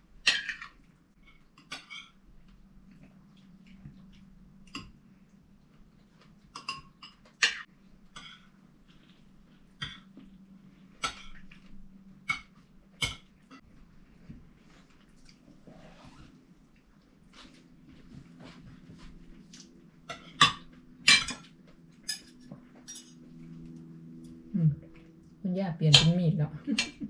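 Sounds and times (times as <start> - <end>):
low steady hum: 0.0 - 27.0
cutlery clinking on plates: 20.1 - 23.2.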